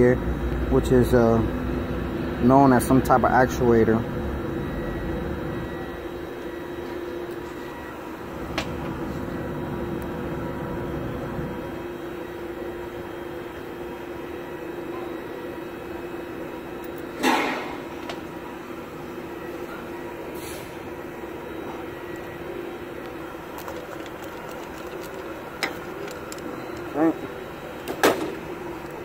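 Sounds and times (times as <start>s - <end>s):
steady background hum: 0.0s - 29.0s
parts clattering: 23.6s - 27.0s.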